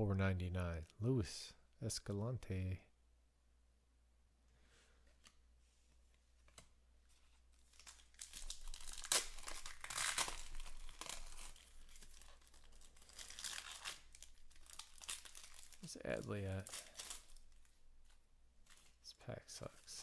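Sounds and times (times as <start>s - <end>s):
foil wrapper crinkling and tearing: 7.5s - 19.0s.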